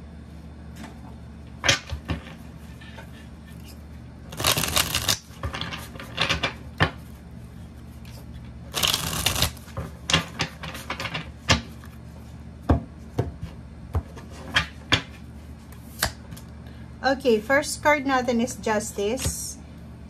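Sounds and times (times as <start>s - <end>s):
cards shuffling: 3.6s - 6.0s, 8.0s - 9.8s.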